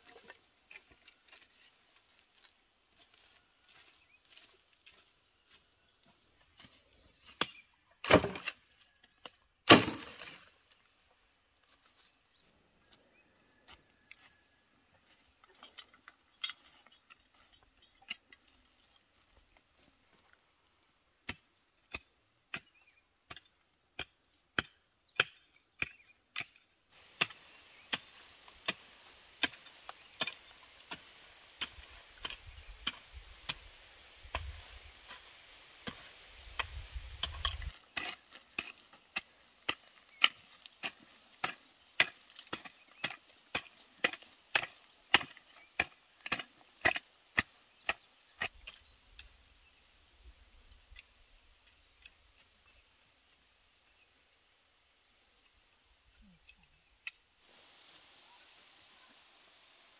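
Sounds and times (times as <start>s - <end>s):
hoe chopping into soil: 7.2s - 8.7s, 9.6s - 10.5s, 21.2s - 48.9s
bamboo poles knocking down: 8.0s - 8.6s, 9.6s - 10.4s.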